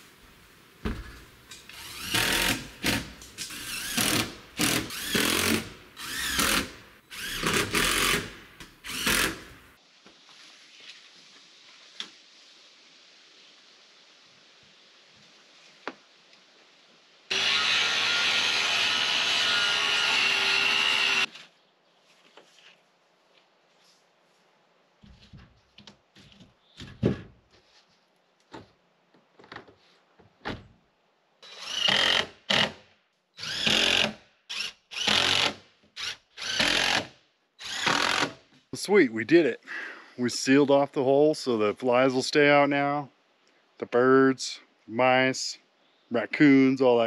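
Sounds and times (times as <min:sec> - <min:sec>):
cordless drill running: 0:01.7 - 0:09.6, 0:17.3 - 0:21.3, 0:33.4 - 0:37.0, 0:37.6 - 0:38.3
drill driving screws in bursts: 0:01.7 - 0:09.7, 0:17.3 - 0:21.3, 0:31.4 - 0:32.8, 0:33.4 - 0:38.4.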